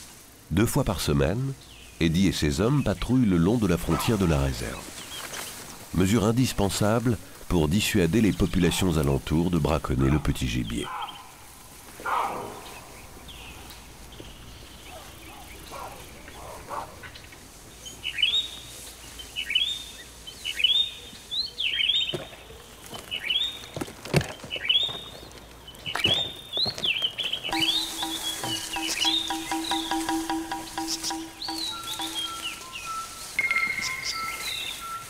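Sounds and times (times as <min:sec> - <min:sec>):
bird calling: 0:12.0 - 0:35.0.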